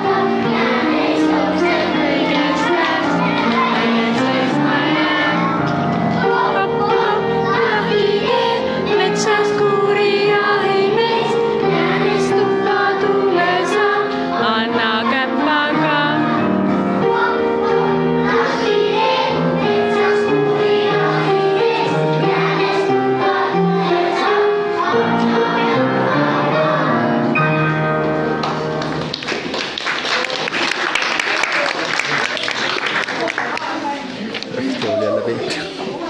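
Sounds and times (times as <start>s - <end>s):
children singing: 0.0s - 28.2s
accompanying music: 0.0s - 31.3s.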